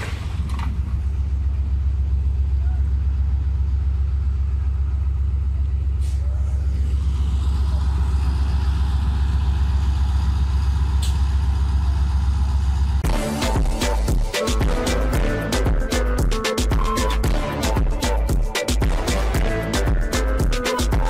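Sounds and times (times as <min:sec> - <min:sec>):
diesel locomotive idling: 0:00.0 - 0:16.6
music: 0:13.0 - 0:21.0.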